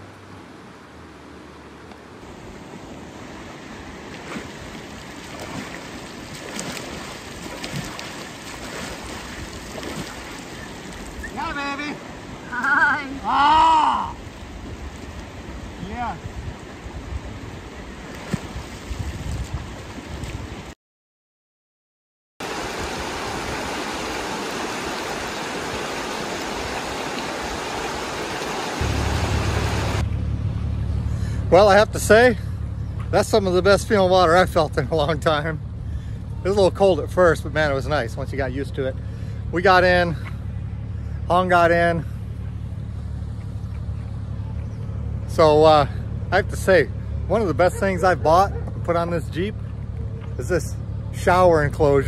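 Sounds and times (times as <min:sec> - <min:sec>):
river flowing: 0:00.0 - 0:19.0, 0:22.4 - 0:51.2
hands slapping water: 0:04.1 - 0:11.2.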